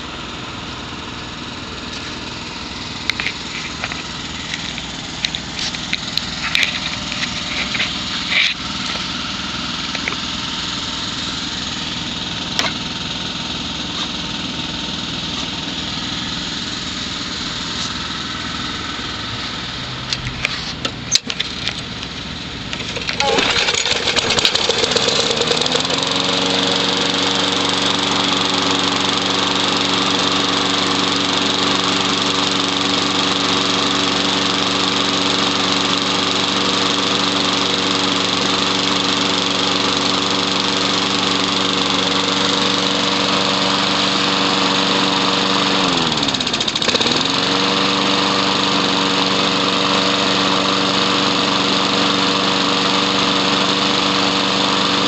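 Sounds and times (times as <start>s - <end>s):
lawn mower engine running: 0.0s - 55.0s.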